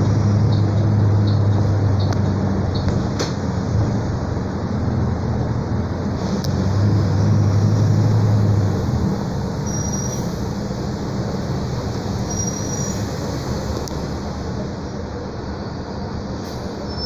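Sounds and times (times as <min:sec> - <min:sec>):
brakes squealing: 0:00.0 - 0:03.5, 0:06.1 - 0:14.5, 0:15.3 - 0:17.0
bus engine drone: 0:00.0 - 0:17.0
road and body noise: 0:00.0 - 0:17.0.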